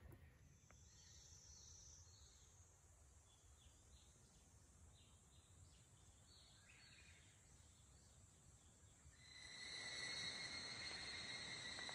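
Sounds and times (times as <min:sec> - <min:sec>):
steady high hiss: 0:09.2 - 0:11.9.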